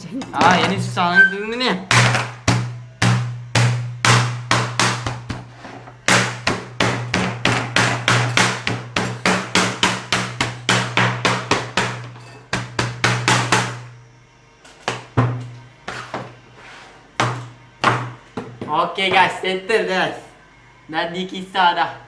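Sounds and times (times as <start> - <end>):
knife chopping on a plastic board: 1.9 - 13.8.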